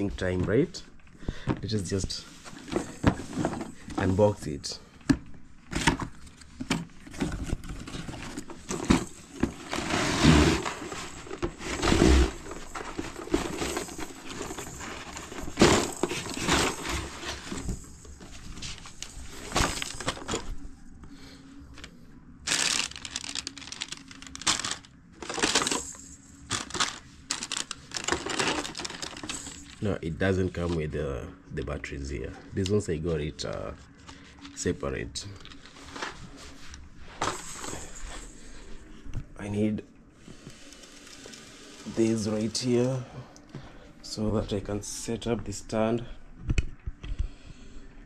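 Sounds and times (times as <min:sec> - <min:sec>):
packaging crinkling and rustling: 0:05.7 - 0:20.6, 0:21.8 - 0:29.9.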